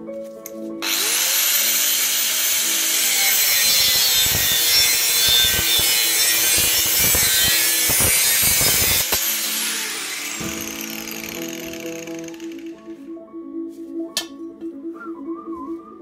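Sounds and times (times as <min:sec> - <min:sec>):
angle grinder cutting steel: 0:00.8 - 0:12.9.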